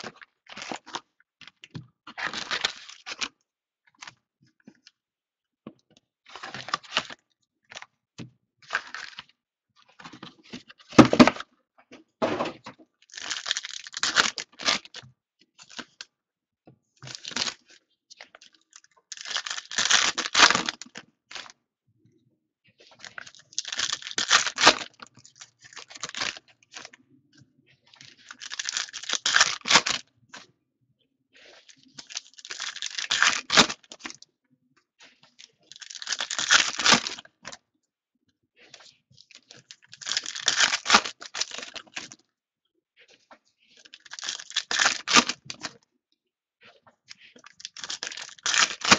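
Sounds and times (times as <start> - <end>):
foil wrappers torn and crinkled: 13.1 - 15.0, 19.1 - 21.4, 23.1 - 26.9, 28.2 - 30.0, 32.0 - 34.2, 35.7 - 37.3, 39.5 - 42.2, 43.9 - 45.8, 47.4 - 48.9.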